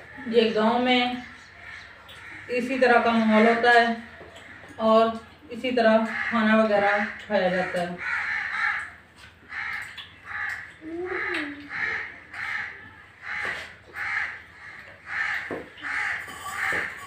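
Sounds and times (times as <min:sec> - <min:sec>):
bird harsh calls: 0:08.0 - 0:17.0.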